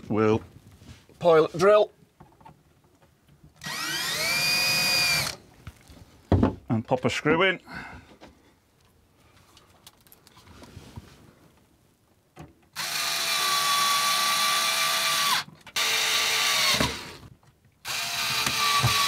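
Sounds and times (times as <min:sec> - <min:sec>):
cordless drill driving screws: 0:03.6 - 0:05.4, 0:12.8 - 0:19.0.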